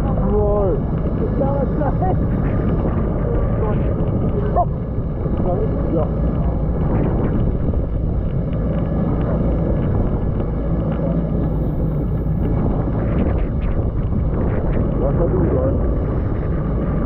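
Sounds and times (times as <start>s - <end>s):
jet ski engine running: 0.0s - 17.0s
wind on microphone: 0.0s - 17.0s.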